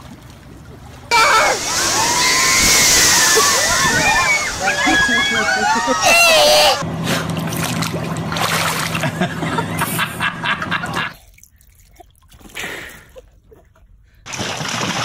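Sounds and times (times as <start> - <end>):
rush of water: 0.0 - 6.8
pool water splashing: 0.0 - 13.6, 14.2 - 15.0
steady low hum: 0.3 - 11.1.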